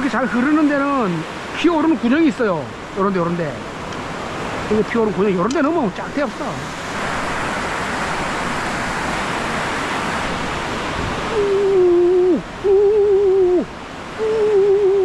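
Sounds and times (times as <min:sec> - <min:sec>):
river water rushing over rocks: 0:00.0 - 0:15.0
man calling out long notes: 0:11.3 - 0:15.0.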